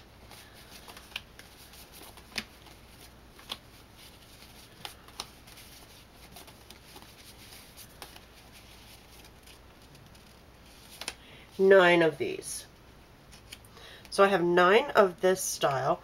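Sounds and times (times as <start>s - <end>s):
paper rustling and sliding: 0.2s - 11.2s.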